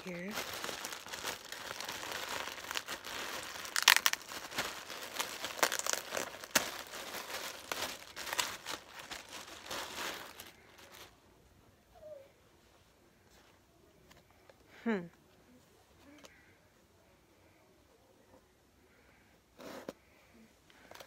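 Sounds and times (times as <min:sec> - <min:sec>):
plastic bag crinkling: 0:00.0 - 0:11.1.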